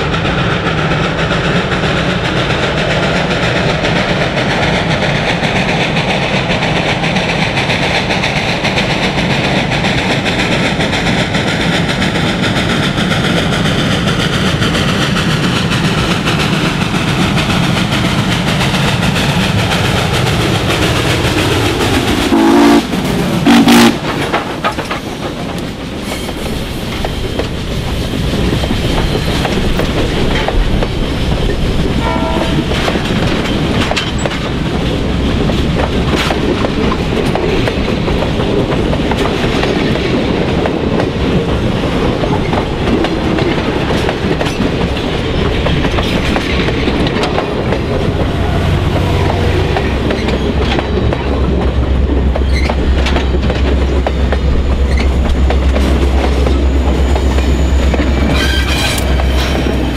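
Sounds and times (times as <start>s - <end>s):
steam locomotive working: 0.0s - 59.9s
wheels clacking over rail joints: 0.0s - 59.9s
steam whistle blasts: 22.3s - 24.0s.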